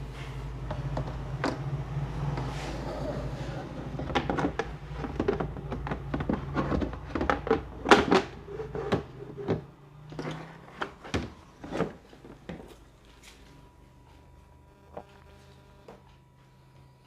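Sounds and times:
plastic clicks and knocks: 4.0s - 9.6s.

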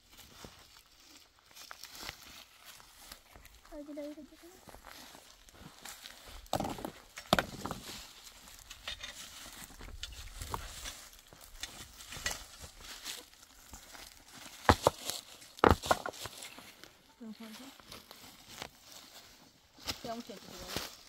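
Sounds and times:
stones and clods rattling: 6.0s - 17.1s
hoes chopping stony soil: 6.4s - 16.6s.

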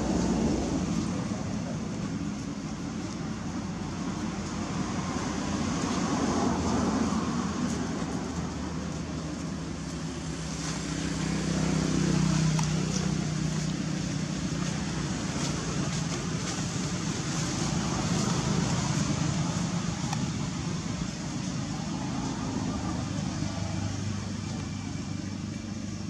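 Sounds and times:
motor traffic engine hum: 0.0s - 26.0s.

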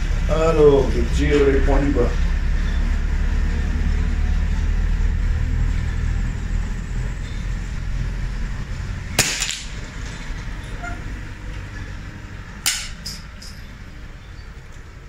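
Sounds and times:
low steady rumble: 0.0s - 15.0s
rifle shot crack: 9.2s - 9.8s.

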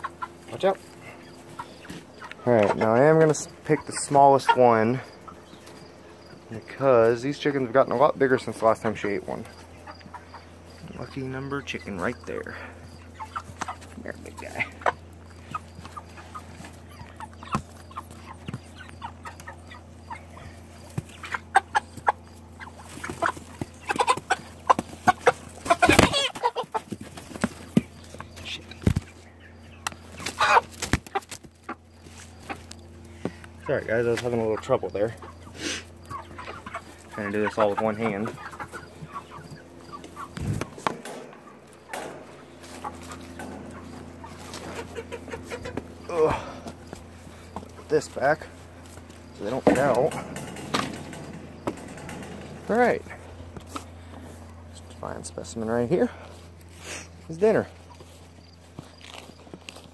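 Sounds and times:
chickens clucking and squawking: 0.0s - 59.9s
steady low hum: 0.0s - 59.9s.

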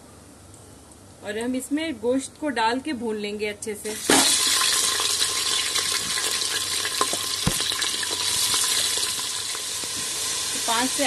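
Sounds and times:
meat sizzling in hot oil: 4.0s - 11.0s.

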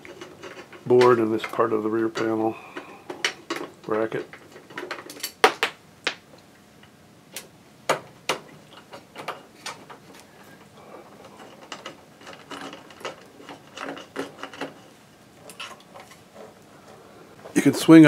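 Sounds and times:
light metallic rattling: 8.4s - 18.0s.

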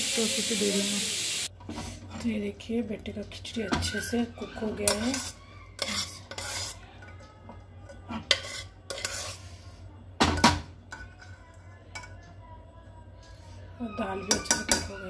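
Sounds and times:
spoon clinking against pot: 3.7s - 7.1s, 8.3s - 9.4s, 14.2s - 15.0s
spoon stirring thick porridge: 3.8s - 9.8s, 14.2s - 15.0s.

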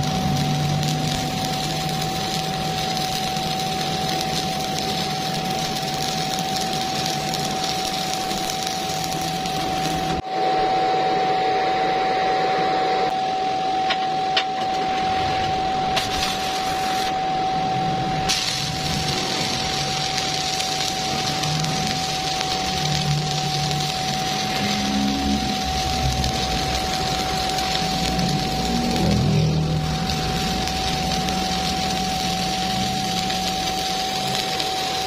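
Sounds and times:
welding arc hissing: 0.0s - 10.2s, 14.8s - 17.2s, 18.1s - 35.0s.

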